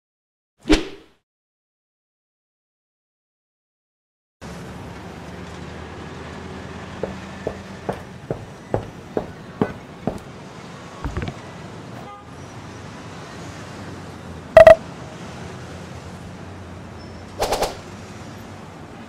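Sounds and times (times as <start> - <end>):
footsteps: 7.0 - 10.3.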